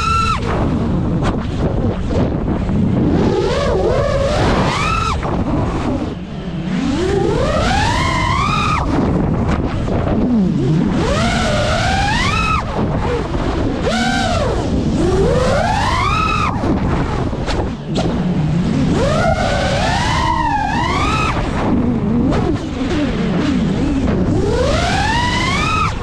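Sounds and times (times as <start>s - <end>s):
drone motors whining: 0.0s - 26.0s
rough rushing noise: 0.0s - 26.0s.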